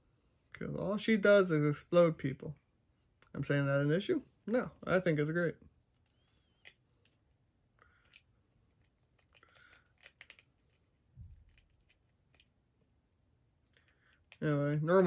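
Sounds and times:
plastic figure parts clicking: 8.0s - 12.6s.

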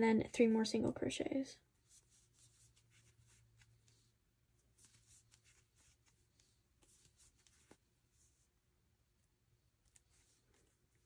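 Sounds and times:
crochet hook rustles and ticks: 1.8s - 8.4s, 9.1s - 11.0s.

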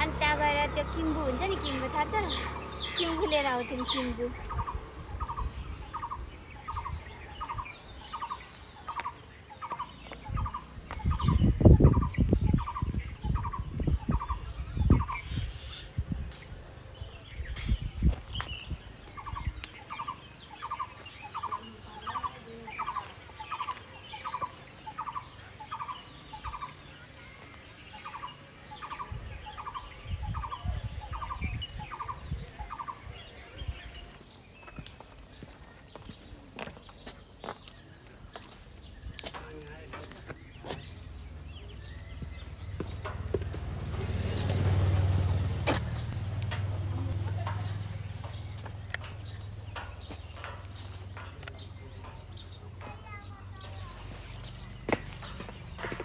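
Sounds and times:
low rumbles: 38.1s - 56.0s.

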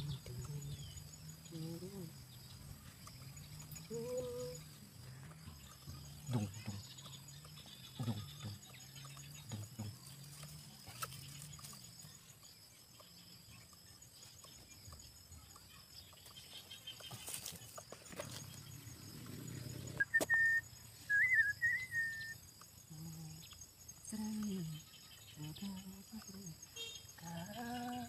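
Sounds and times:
short high whistle: 20.0s - 22.4s.

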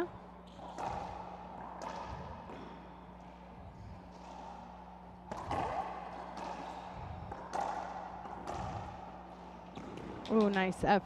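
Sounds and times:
racquet hitting ball: 0.5s - 2.8s, 4.1s - 10.4s
ball bouncing off walls: 0.6s - 2.8s, 5.3s - 6.7s, 7.3s - 10.5s.

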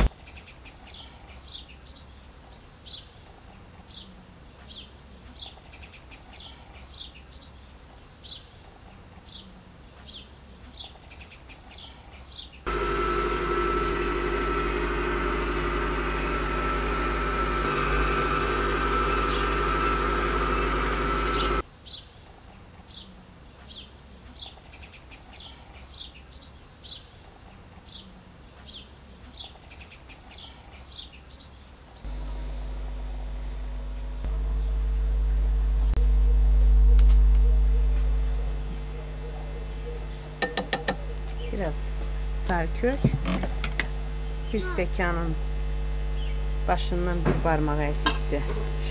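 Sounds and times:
motor hum with whine: 12.7s - 21.6s, 32.0s - 48.9s.

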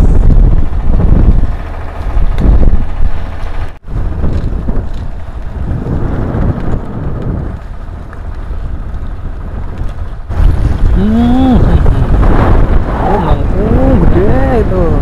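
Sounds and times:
wind buffeting microphone: 0.0s - 15.0s
voice call: 13.0s - 15.0s.

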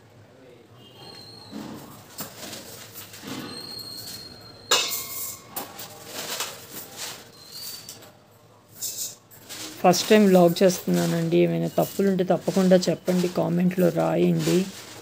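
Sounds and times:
metal kitchen vessels clinking: 2.2s - 15.0s
sharp metallic clang: 4.7s - 5.8s.

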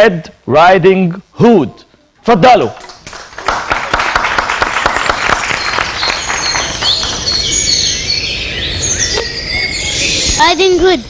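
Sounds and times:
audience clapping: 2.8s - 7.9s
birds chirping and trilling: 5.4s - 11.0s.

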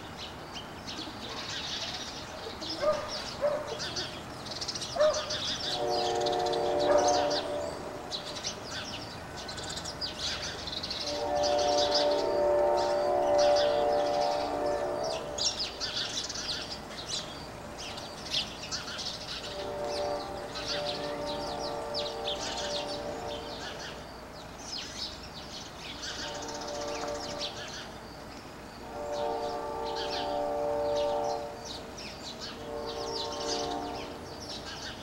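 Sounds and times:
small birds chirping: 0.0s - 35.0s
train horn: 5.0s - 9.5s, 10.2s - 16.6s, 19.3s - 24.0s, 26.0s - 27.8s, 28.8s - 35.0s
steady chord of tones: 10.2s - 24.4s, 28.6s - 34.6s.

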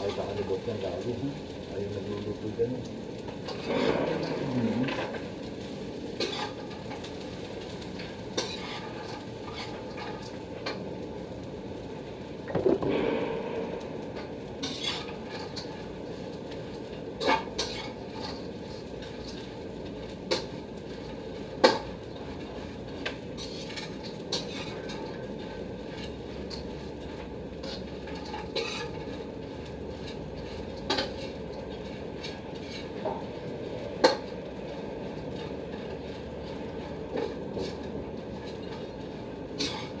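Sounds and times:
frying hiss: 0.0s - 40.0s
spatula scraping metal pan: 3.4s - 5.1s, 6.2s - 7.0s, 8.3s - 10.8s, 14.6s - 15.8s, 17.2s - 19.4s, 23.4s - 33.2s, 39.6s - 40.0s.

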